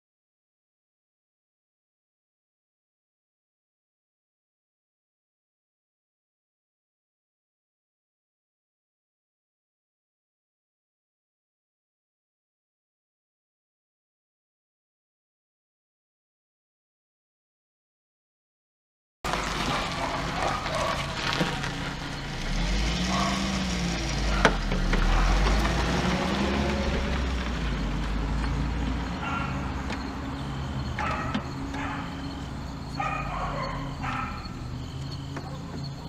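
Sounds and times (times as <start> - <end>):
vehicle passing rumble: 19.3 - 36.0
dog barking: 19.5 - 21.7, 23.0 - 25.6, 29.0 - 30.0, 30.9 - 36.0.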